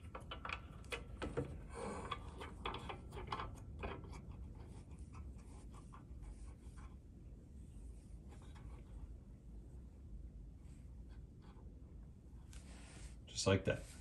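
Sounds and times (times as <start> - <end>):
plastic fitting clicking and rubbing: 0.0 - 6.0.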